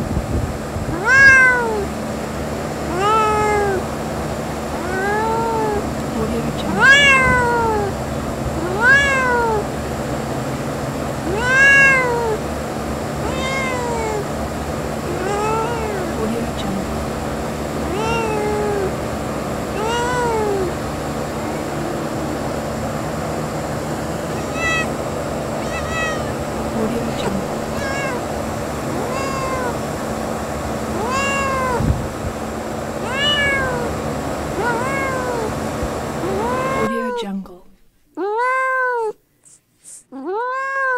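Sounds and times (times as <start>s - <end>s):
cat meowing: 0.9s - 1.9s, 2.9s - 3.9s, 4.8s - 5.9s, 6.6s - 8.0s, 8.6s - 9.8s, 11.2s - 12.5s, 13.2s - 14.3s, 15.1s - 17.2s, 17.9s - 19.0s, 19.7s - 22.6s, 24.3s - 29.9s, 31.0s - 31.9s, 33.0s - 34.0s, 34.6s - 35.6s, 36.2s - 37.2s, 38.3s - 39.2s, 40.4s - 40.9s.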